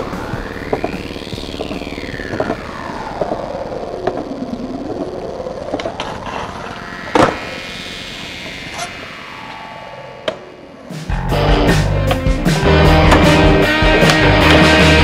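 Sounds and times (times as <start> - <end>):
skateboard wheels rolling on concrete: 0.0 - 7.6, 11.3 - 15.0.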